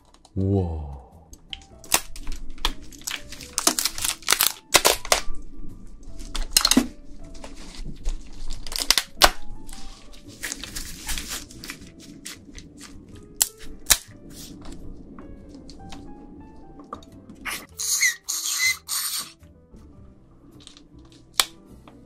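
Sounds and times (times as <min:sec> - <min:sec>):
crab shell cracking and crunching: 0:01.3 - 0:05.4, 0:06.2 - 0:14.6, 0:20.6 - 0:21.6.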